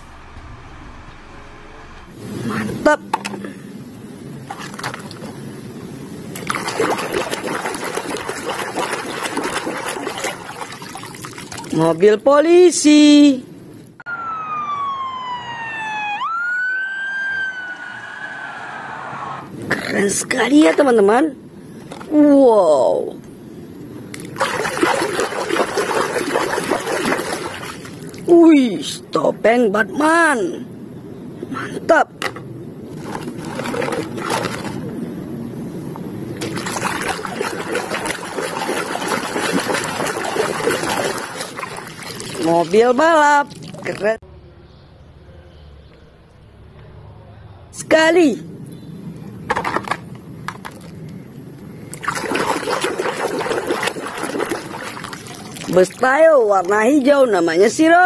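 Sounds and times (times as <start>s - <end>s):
water splashing and sloshing: 4.3s - 12.1s, 24.1s - 28.3s, 32.2s - 44.2s, 49.5s - 58.0s
police siren wailing: 14.1s - 19.5s.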